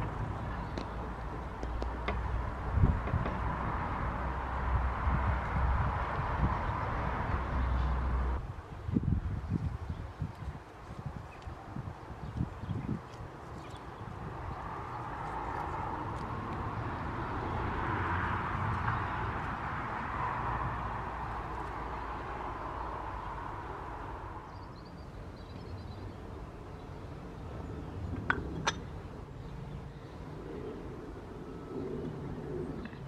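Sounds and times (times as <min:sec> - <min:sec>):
distant vehicle passing: 0:00.0 - 0:08.4, 0:13.8 - 0:25.2
bird chirping: 0:24.4 - 0:30.2.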